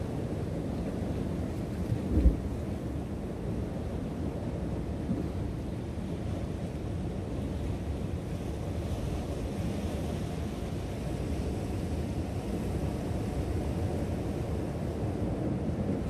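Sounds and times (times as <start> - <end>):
ocean surf against rocks: 0.0 - 16.0
wind rumble buffeting microphone: 1.9 - 3.0.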